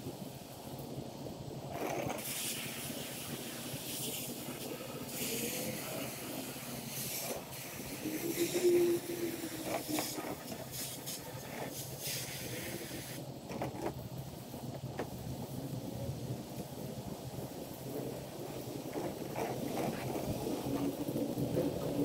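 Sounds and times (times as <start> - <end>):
spray wand hissing: 1.8 - 13.3.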